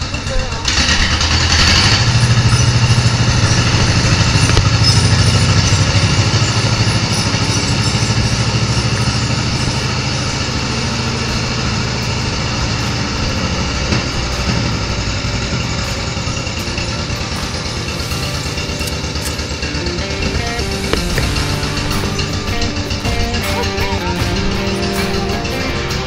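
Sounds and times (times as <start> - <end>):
tractor engine running: 0.0 - 26.0.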